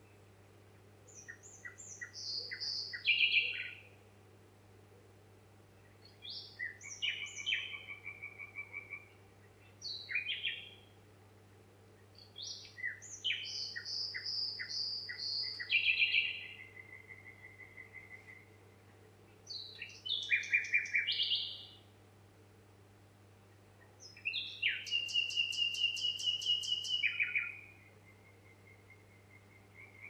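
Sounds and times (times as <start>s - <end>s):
songbird singing with trills: 1.1s - 4.0s, 5.8s - 11.0s, 12.0s - 18.6s, 19.3s - 21.9s, 23.6s - 30.0s.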